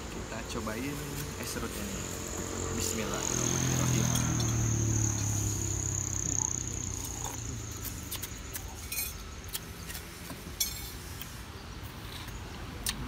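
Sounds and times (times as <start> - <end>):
low engine hum: 0.0 - 8.4
high-pitched insect trill: 0.7 - 9.2.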